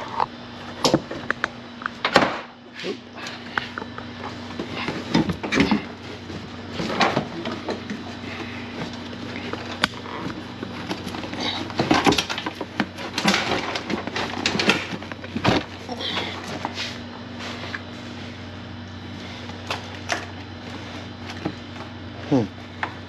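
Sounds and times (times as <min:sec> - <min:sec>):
steady low hum: 0:00.0 - 0:23.0
carpet scuffing and rustling: 0:14.0 - 0:19.5.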